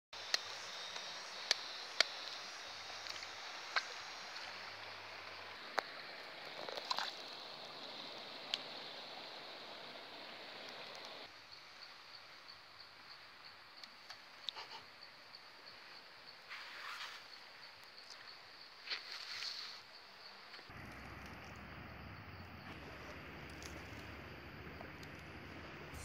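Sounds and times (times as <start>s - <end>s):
stream water rushing: 0.2s - 11.3s.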